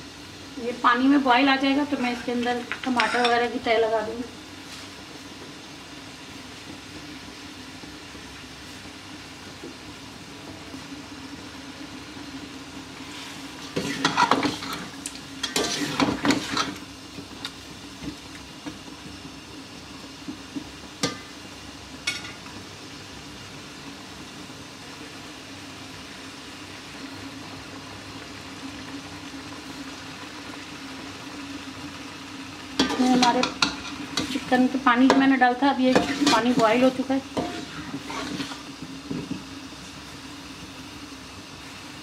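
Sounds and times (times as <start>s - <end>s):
curry sizzling: 0.0s - 42.0s
metal spoon scraping pot: 35.9s - 38.6s.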